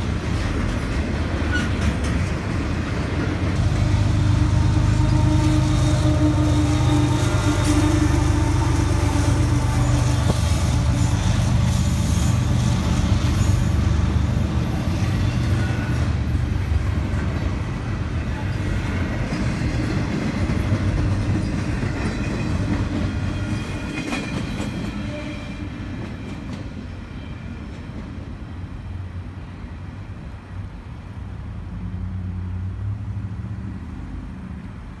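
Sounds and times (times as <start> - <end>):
train wheels clattering over rail joints: 0.0 - 16.2, 18.5 - 25.3
freight train rumbling past: 0.0 - 35.0.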